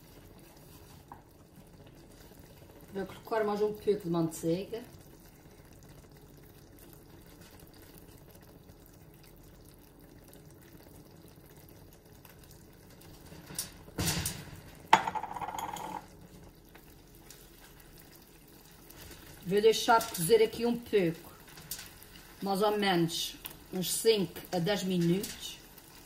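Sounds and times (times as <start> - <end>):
sauce bubbling in a pan: 0.0 - 26.0
utensil knocking and clattering: 14.0 - 16.1.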